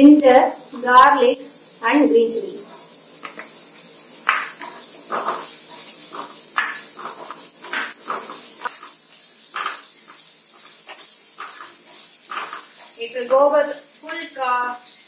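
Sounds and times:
food sizzling in oil: 0.0s - 15.0s
spatula scraping pan: 3.1s - 13.5s.

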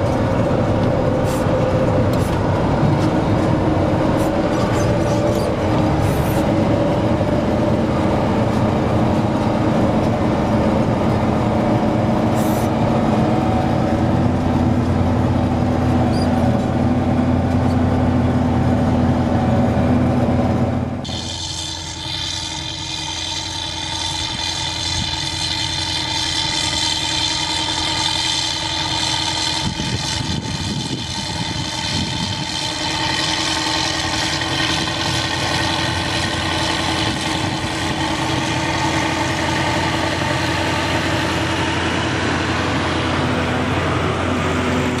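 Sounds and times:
high whine: 0.0s - 45.0s
tractor diesel engine running: 0.0s - 45.0s.

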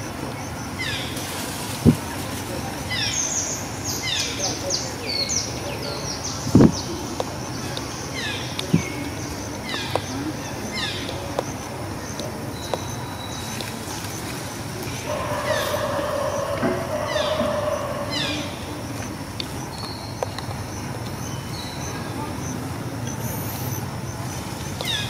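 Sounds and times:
birds chirping: 1.9s - 25.0s
drawn-out whine: 13.7s - 20.3s.

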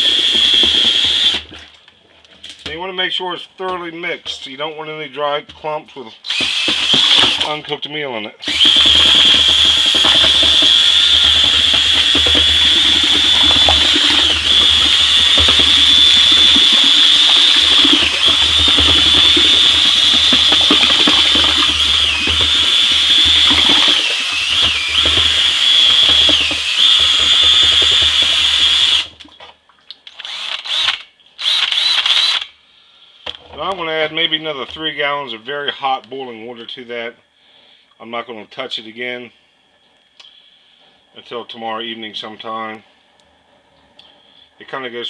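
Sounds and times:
electric drill whining: 0.0s - 1.5s, 6.3s - 7.5s, 8.4s - 29.1s, 30.2s - 32.5s.

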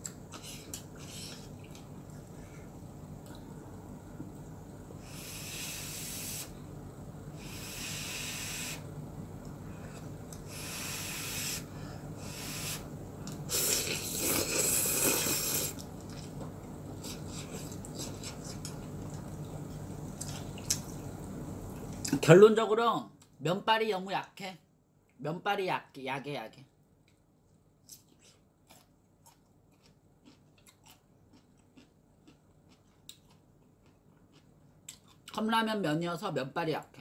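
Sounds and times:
person blowing on food: 5.0s - 6.6s, 7.4s - 8.9s, 10.5s - 12.9s, 13.5s - 15.8s
person slurping noodles: 7.4s - 8.8s, 10.5s - 12.8s, 13.5s - 15.8s.

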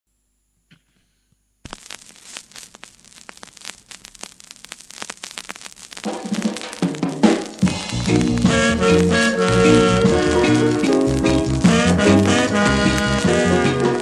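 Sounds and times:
vinyl stylus crackling: 0.5s - 14.0s
ska music: 4.9s - 14.0s.

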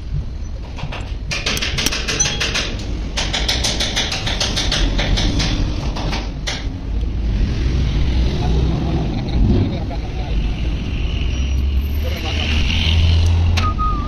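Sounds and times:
rapid sharp tapping: 0.8s - 6.7s.

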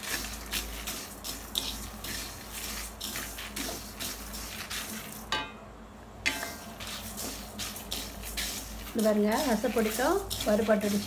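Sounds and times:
seeds rattling and rustling: 0.0s - 5.3s, 6.5s - 11.0s
spatula scraping metal pan: 0.0s - 5.4s, 6.3s - 11.0s.

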